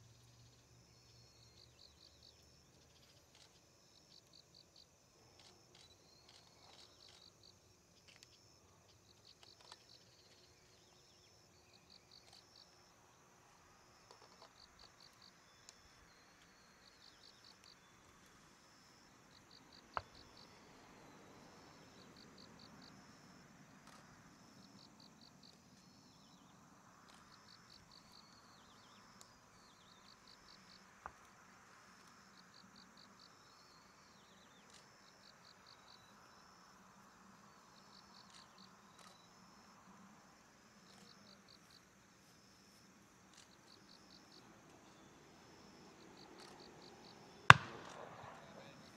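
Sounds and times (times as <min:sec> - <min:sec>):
crickets chirping: 0:00.0 - 0:48.9
sharp clicks: 0:47.5 - 0:48.5.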